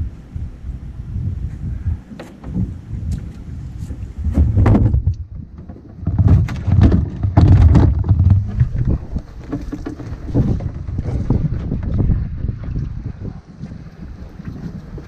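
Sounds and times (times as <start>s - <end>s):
wind noise on microphone: 0.0s - 15.0s
low rumbling handling noise: 1.3s - 15.0s
canoe knocks and bumps: 2.1s - 12.9s.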